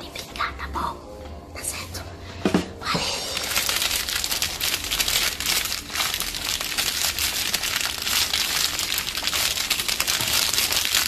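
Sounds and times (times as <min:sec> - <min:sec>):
crinkly material crackling: 0:03.2 - 0:11.0.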